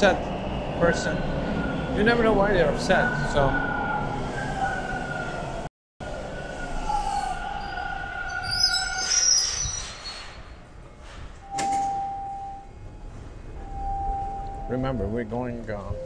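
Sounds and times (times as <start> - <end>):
subway train rumbling: 0.0 - 16.0
train wheels squealing: 6.6 - 10.5
steady beep: 13.6 - 16.0.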